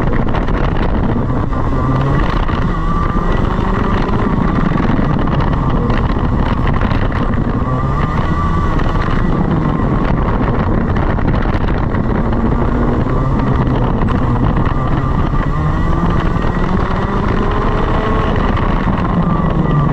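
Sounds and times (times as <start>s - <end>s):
racing kart engine revving: 0.0s - 19.9s.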